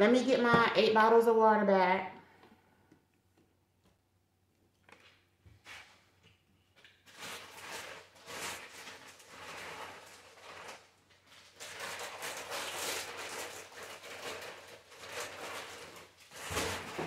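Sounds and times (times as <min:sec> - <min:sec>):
plastic bottles rustling and crinkling: 0:04.8 - 0:17.0.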